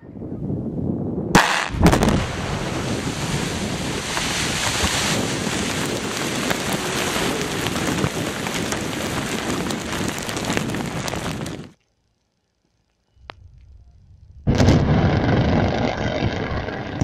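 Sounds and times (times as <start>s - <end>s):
rushing roar of blast dust: 1.3s - 11.8s, 14.5s - 17.0s
falling debris crackles: 1.8s - 11.8s, 14.5s - 17.0s.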